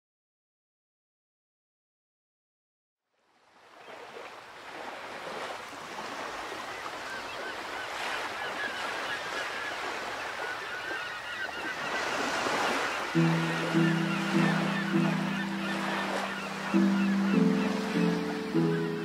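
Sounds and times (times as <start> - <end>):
rushing wind or surf: 3.7 - 19.0
birds chirping: 6.4 - 19.0.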